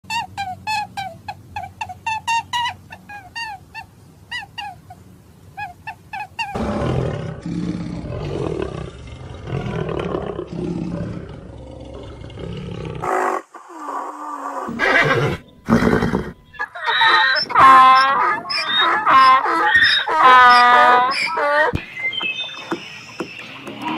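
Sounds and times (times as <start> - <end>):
big cat roaring and growling: 6.6 - 13.4
high squeaky chirps: 14.8 - 23.9.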